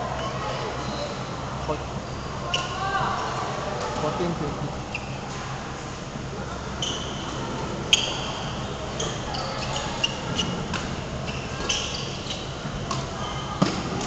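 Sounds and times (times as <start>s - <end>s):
shoes squeaking on court floor: 6.7s - 13.7s.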